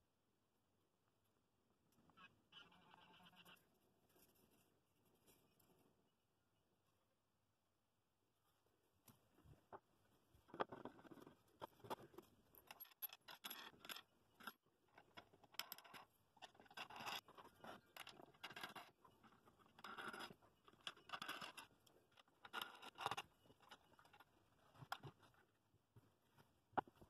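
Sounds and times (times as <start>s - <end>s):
wooden rings scraping and clicking: 10.5s - 25.6s.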